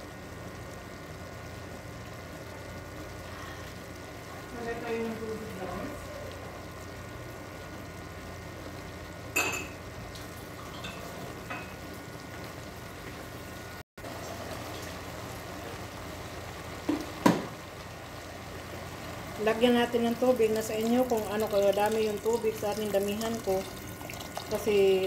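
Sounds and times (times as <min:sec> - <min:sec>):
food sizzling in a pot: 0:00.0 - 0:25.0.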